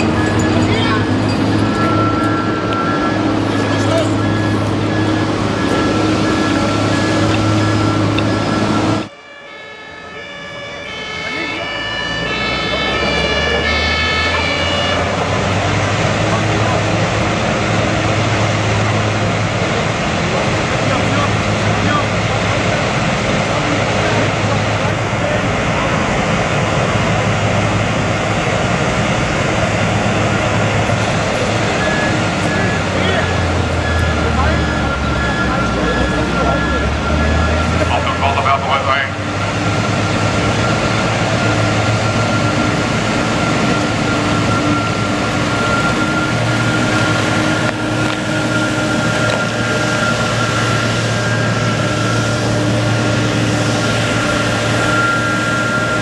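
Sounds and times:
constant high whine: 0:00.0 - 0:56.0
loud engine drone: 0:00.0 - 0:56.0
truck mechanical noise: 0:00.0 - 0:56.0.

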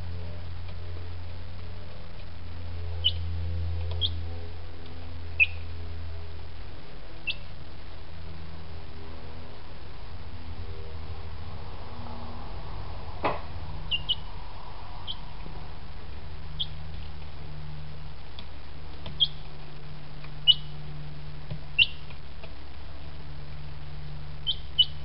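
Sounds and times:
steady low hum: 0:00.0 - 0:25.0
chick peeping: 0:03.0 - 0:03.2, 0:03.9 - 0:04.2, 0:05.4 - 0:05.7, 0:07.2 - 0:07.5, 0:13.9 - 0:14.3, 0:15.0 - 0:15.4, 0:16.6 - 0:17.0, 0:19.0 - 0:19.5, 0:20.2 - 0:20.8, 0:21.7 - 0:22.1, 0:24.4 - 0:25.0.

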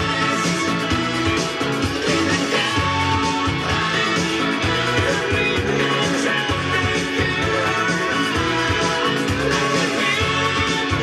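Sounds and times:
guitar rock music: 0:00.0 - 0:11.0.

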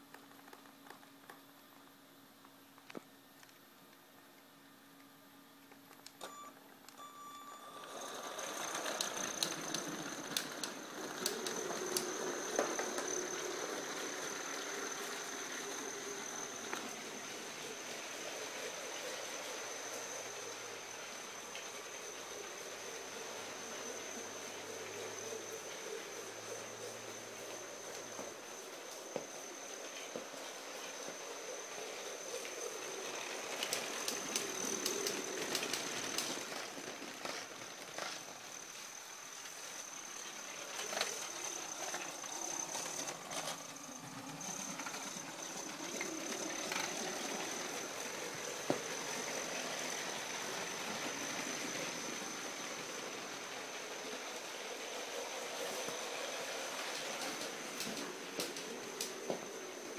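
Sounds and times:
thin high tone: 0:06.3 - 0:09.4
toy train motor whining: 0:07.1 - 0:59.9
wheels clattering over track joints: 0:08.0 - 0:18.0, 0:32.4 - 0:38.7, 0:39.4 - 0:59.9.

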